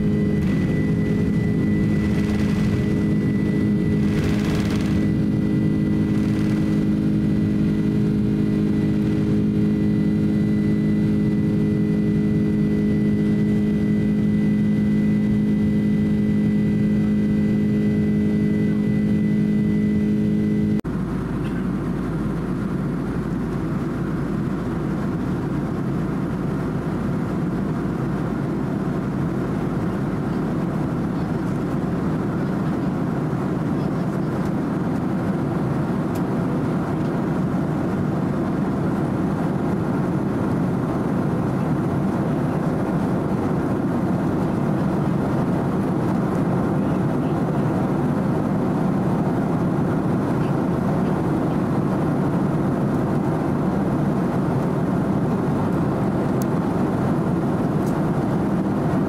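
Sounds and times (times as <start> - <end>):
cabin air rush: 0.0 - 9.6
jet engine drone with whine: 0.0 - 59.0.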